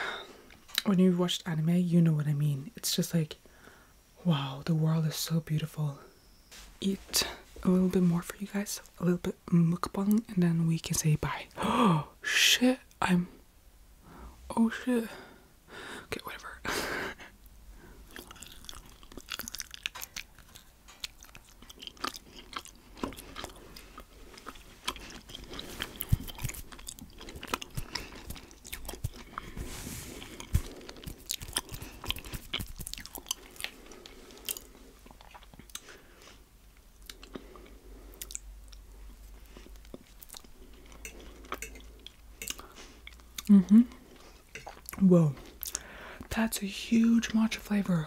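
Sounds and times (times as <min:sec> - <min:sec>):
person chewing food: 0:17.9 - 0:46.0.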